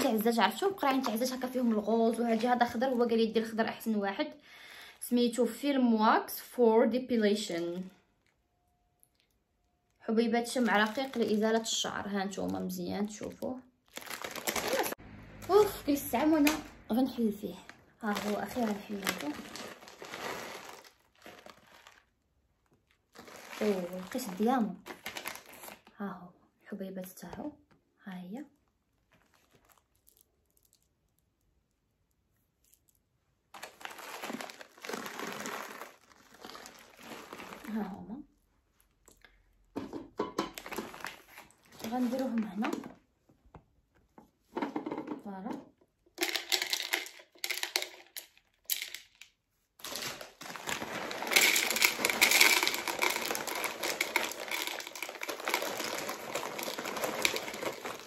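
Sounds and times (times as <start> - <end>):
plastic packet crinkling: 0.0 - 3.6, 10.4 - 16.8, 17.5 - 25.9, 29.1 - 31.2, 32.6 - 38.0, 40.6 - 42.9, 46.2 - 58.0
wax beads pouring into pot: 13.9 - 22.3, 23.1 - 25.8, 33.6 - 38.0, 46.2 - 58.0.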